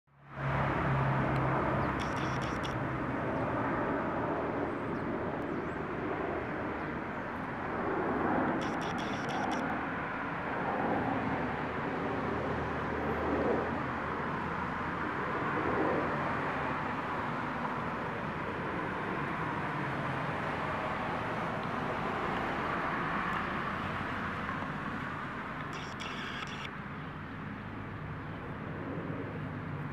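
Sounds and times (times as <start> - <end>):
distant traffic: 0.1 - 29.9
camera autofocus motor whirring: 2.0 - 2.8, 8.6 - 9.6, 25.6 - 26.7.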